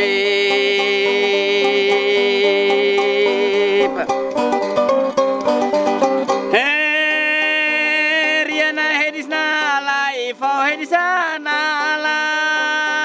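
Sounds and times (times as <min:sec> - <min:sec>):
plucked zither notes: 0:00.0 - 0:13.0.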